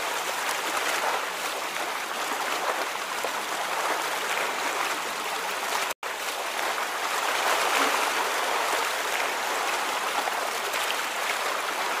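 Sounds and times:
stream water rushing: 0:00.0 - 0:12.0.

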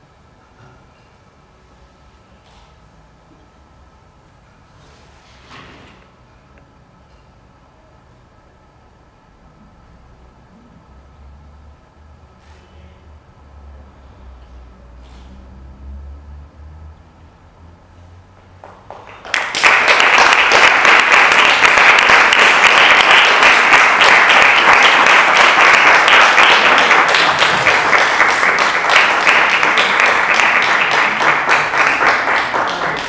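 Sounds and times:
audience applauding: 0:18.6 - 0:33.0.

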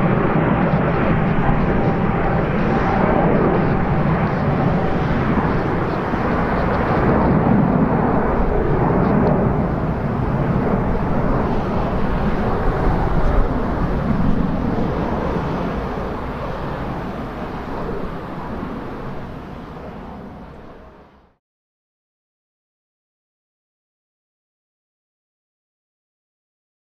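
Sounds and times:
jet airliner flying past: 0:00.0 - 0:21.4.

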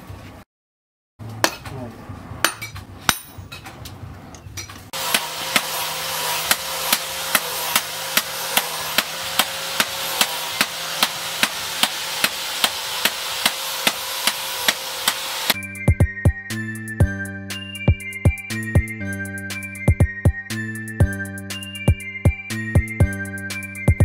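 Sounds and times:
hammer striking metal: 0:01.4 - 0:01.8, 0:02.4 - 0:03.6, 0:04.9 - 0:15.6.

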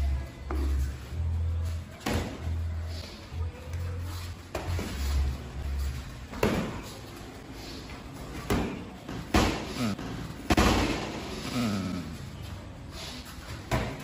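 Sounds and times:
boxing gloves slapping and thudding: 0:06.3 - 0:07.0, 0:08.4 - 0:11.2, 0:13.7 - 0:14.0.

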